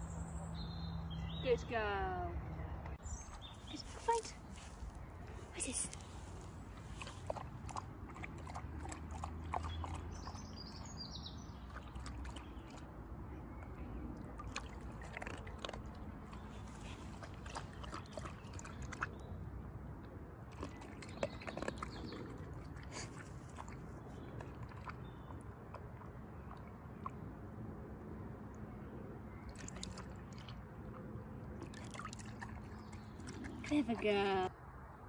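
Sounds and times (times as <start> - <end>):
dog lapping water in bowl: 6.8 - 12.9, 14.2 - 19.2, 20.5 - 27.3, 29.5 - 34.3
small splashes and clicks: 14.2 - 19.2, 29.5 - 30.6.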